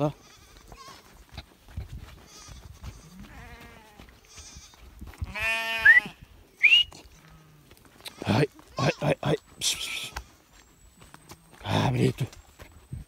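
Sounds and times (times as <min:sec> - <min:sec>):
sheep and goats bleating: 0:00.0 - 0:06.3, 0:07.0 - 0:12.4.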